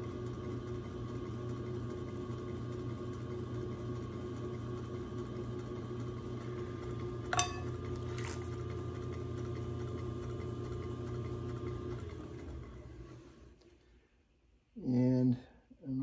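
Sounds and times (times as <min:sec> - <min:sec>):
potter's wheel motor hum: 0:00.0 - 0:14.0
sharp ringing click: 0:07.4 - 0:07.7.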